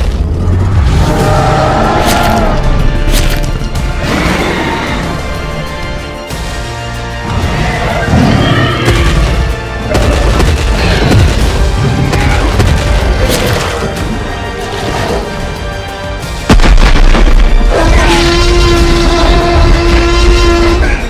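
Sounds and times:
dramatic music: 0.0s - 21.0s
dinosaur roars: 0.3s - 2.7s.

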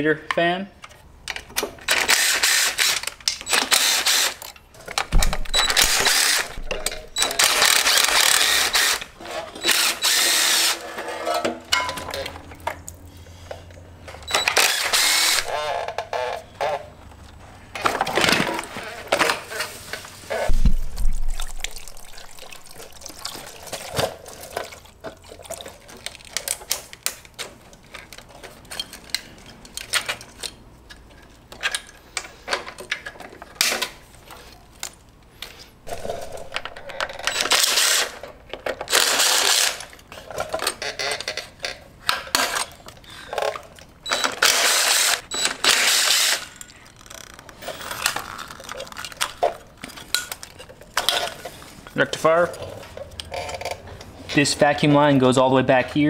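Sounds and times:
tools and metal parts clinking: 2.9s - 9.8s, 10.9s - 13.0s, 20.5s - 35.0s, 35.9s - 54.4s
impact driver running on bolts: 5.2s - 10.9s, 14.3s - 15.6s.

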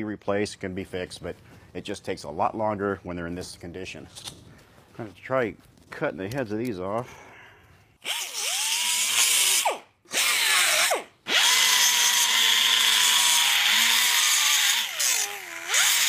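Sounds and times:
pneumatic cut-off tool whining: 8.0s - 16.0s.

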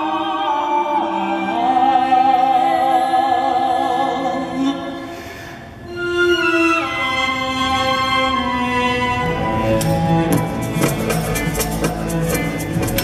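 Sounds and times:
musical accompaniment: 5.7s - 13.0s.

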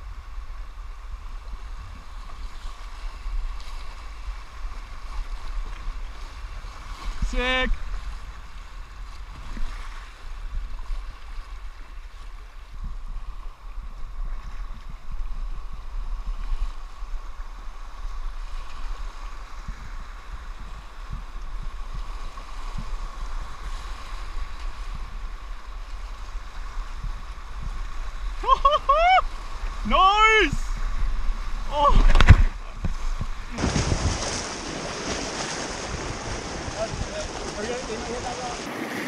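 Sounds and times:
whitewater rapids rushing: 28.3s - 39.0s.

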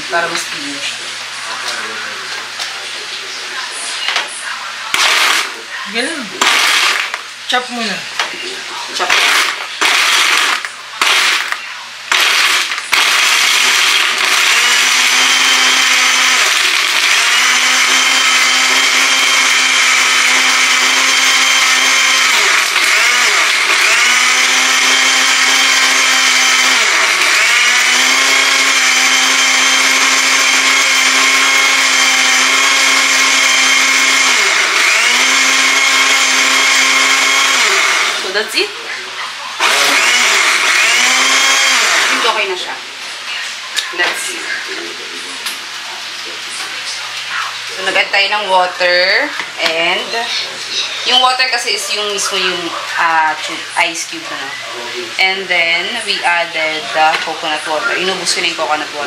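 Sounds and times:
electric blender running: 4.9s - 8.0s, 8.9s - 38.9s, 39.5s - 44.4s.

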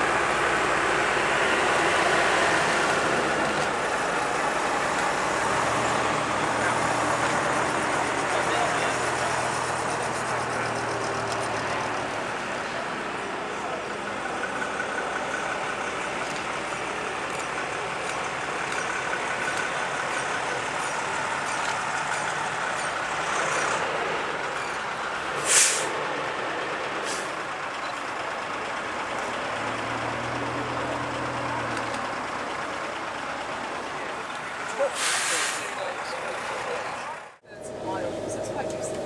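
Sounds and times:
diesel coach engine passing: 0.0s - 39.0s
air brake hiss: 25.4s - 25.9s, 27.0s - 27.3s, 34.9s - 35.7s.

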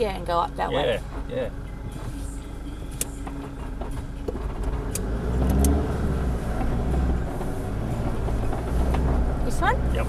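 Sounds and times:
engine pulling under load: 3.5s - 10.0s.

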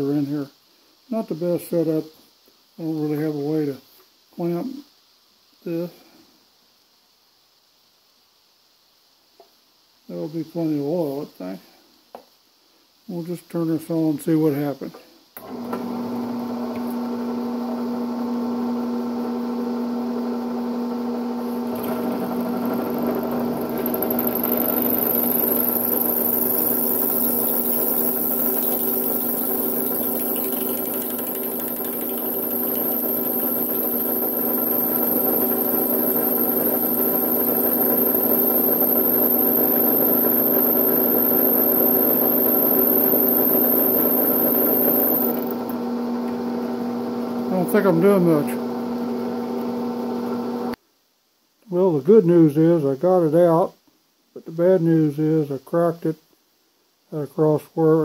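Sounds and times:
drill press motor running: 15.4s - 50.8s
thin high whine: 21.4s - 45.8s
drill bit drilling into steel: 21.4s - 46.4s.

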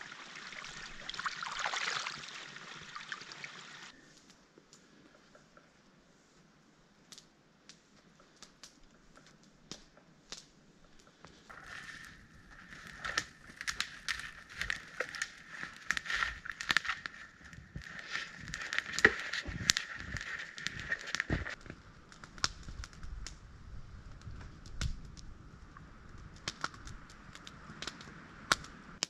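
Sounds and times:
wood fire crackling: 0.0s - 29.0s
fire pops and snaps: 7.0s - 29.0s.

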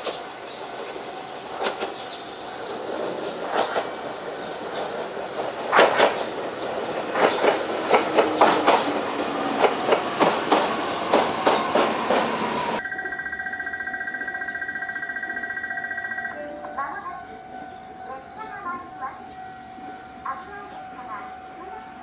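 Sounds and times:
train wheels clacking over rail joints: 0.0s - 12.8s
level crossing alarm ringing: 6.2s - 22.0s.

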